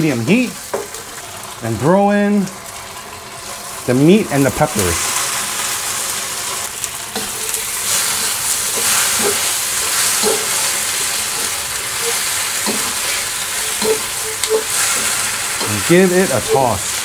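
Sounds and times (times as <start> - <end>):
food sizzling in a wok: 0.0 - 17.0
metal ladle scraping a wok: 7.1 - 17.0.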